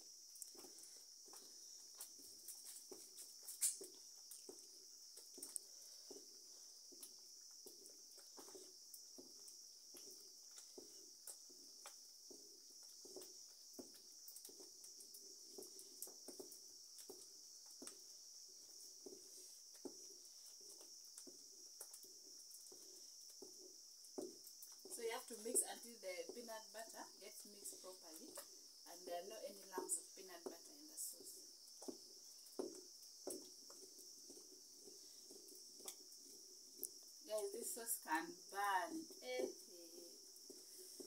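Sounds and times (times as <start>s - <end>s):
high insect drone: 0.0s - 41.0s
wooden stick stirring in clay pot: 0.5s - 41.0s.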